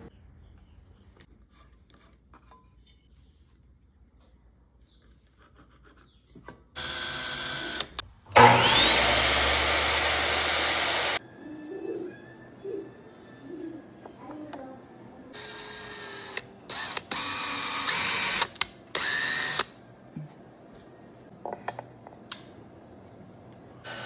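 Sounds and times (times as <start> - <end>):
cordless drill boring through wood: 6.8 - 11.2, 15.4 - 19.6.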